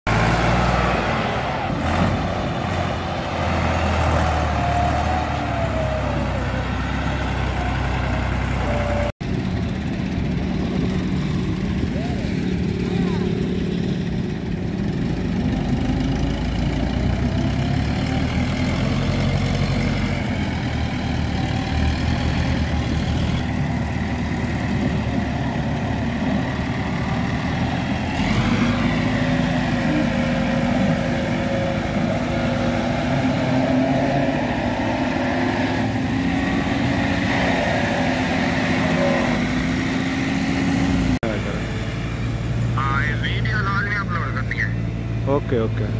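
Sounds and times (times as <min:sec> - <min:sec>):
tractor diesel engine under load: 0:00.1 - 0:45.9.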